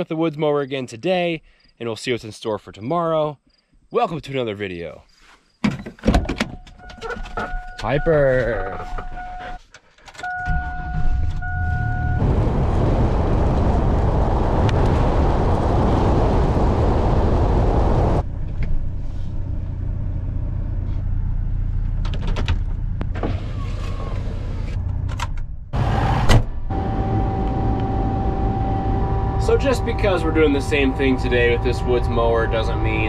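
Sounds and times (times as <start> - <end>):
electronic warning chime: 6.8 - 9.6, 10.3 - 12.2, 26.7 - 33.0
truck engine and driving noise: 10.2 - 33.0
tractor cab hum with held tone: 26.7 - 33.0.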